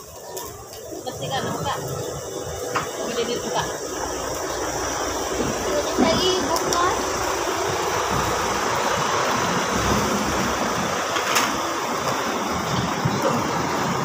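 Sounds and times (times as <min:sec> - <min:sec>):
hotpot boiling hiss: 0:00.0 - 0:14.0.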